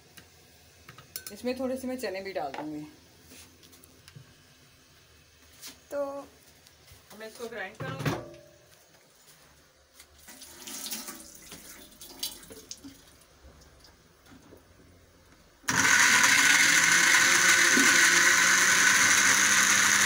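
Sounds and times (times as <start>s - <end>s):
electric blender motor running: 15.7s - 20.0s.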